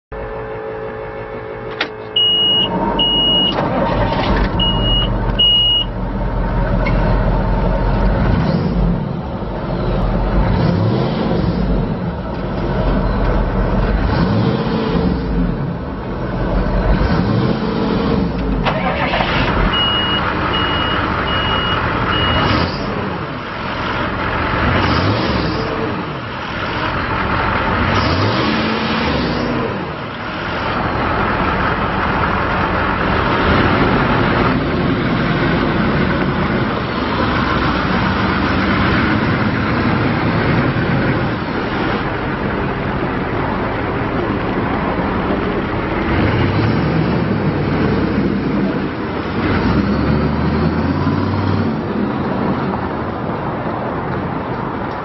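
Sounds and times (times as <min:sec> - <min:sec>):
diesel engine revving: 0:00.1 - 0:55.0
high beeping alarm: 0:00.5 - 0:03.6, 0:04.6 - 0:05.9.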